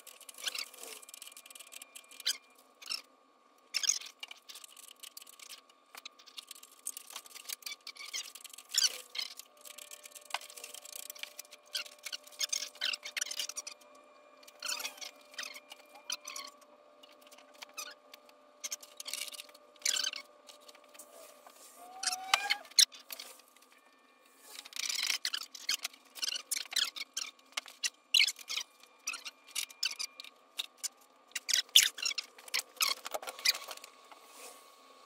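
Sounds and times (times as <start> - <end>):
small hard objects clicking: 3.8 - 13.6.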